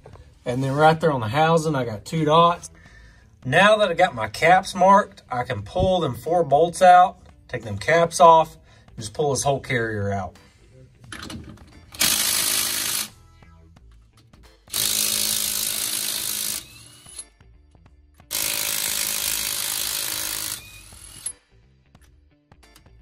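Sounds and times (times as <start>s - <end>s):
impact driver hammering bolts: 11.2s - 13.1s, 14.7s - 17.2s, 18.3s - 21.3s.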